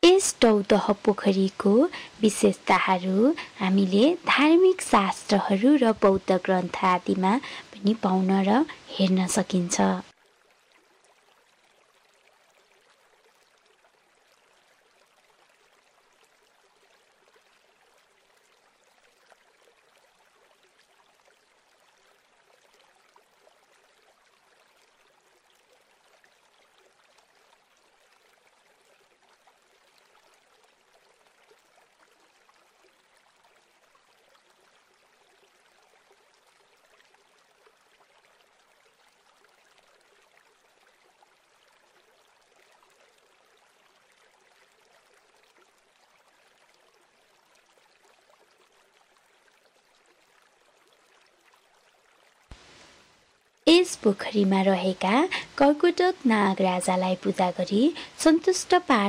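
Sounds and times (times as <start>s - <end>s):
faint even hiss: 52.5s - 59.0s.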